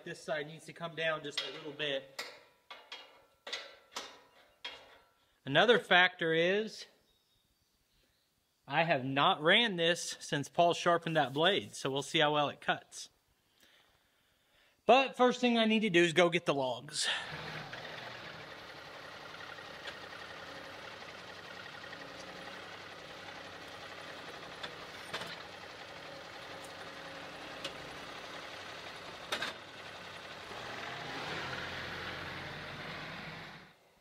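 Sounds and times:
tractor engine running: 0:17.0 - 0:33.8.

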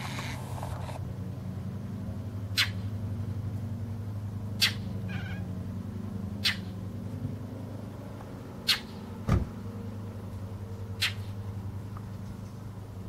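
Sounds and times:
cat mewing: 0:05.1 - 0:05.5.

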